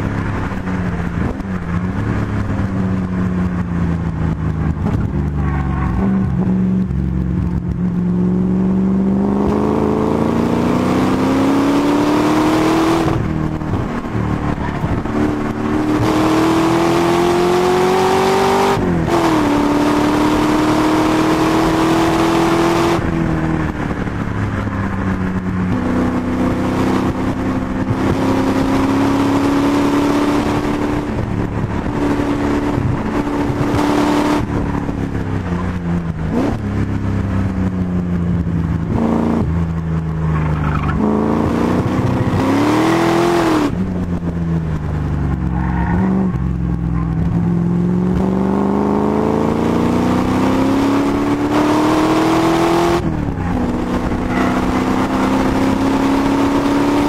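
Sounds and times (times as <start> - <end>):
car engine accelerating: 0.0 - 57.0
wind and road noise: 0.0 - 57.0.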